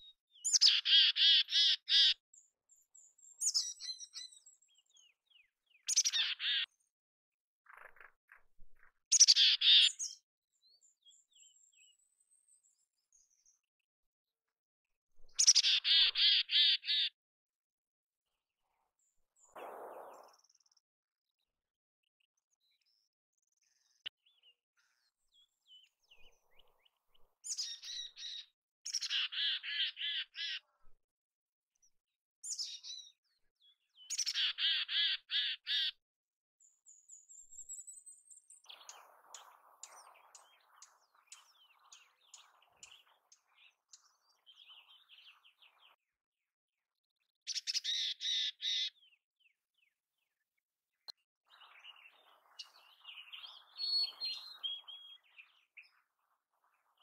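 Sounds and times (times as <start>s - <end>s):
chickadee calling: 5.9s - 6.7s, 15.4s - 17.1s, 29.0s - 30.6s, 34.1s - 35.9s.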